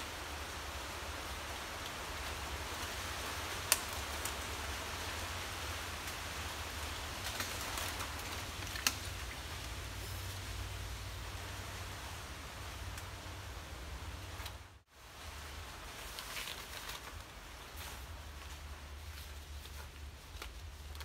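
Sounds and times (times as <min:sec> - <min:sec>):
outdoor hiss: 0:00.0 - 0:21.0
dry debris cracking underfoot: 0:06.9 - 0:09.5, 0:16.0 - 0:21.0.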